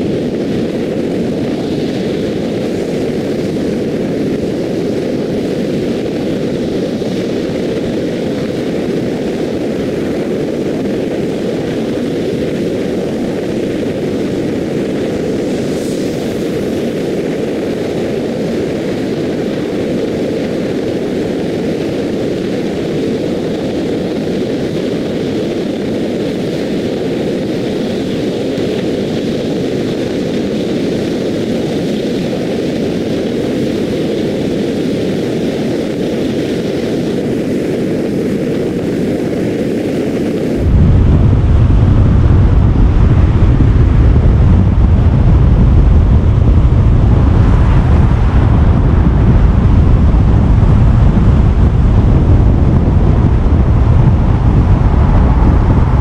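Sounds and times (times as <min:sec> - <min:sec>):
car wind and road noise: 0:40.6 - 0:56.0.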